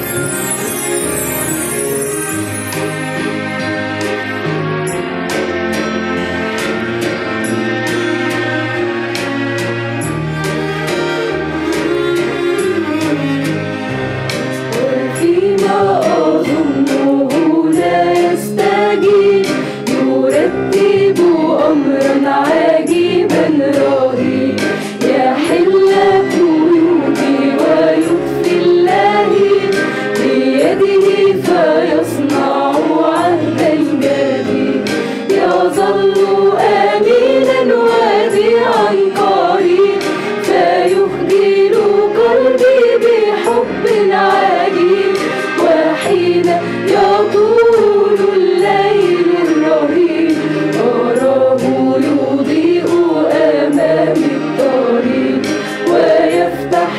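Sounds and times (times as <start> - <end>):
mixed choir singing a hymn: 14.8 - 56.9.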